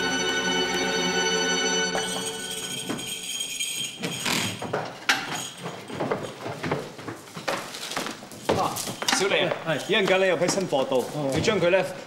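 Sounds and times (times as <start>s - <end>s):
background score music: 0.0s - 3.7s
jingling clinks of goods handled: 1.9s - 11.1s.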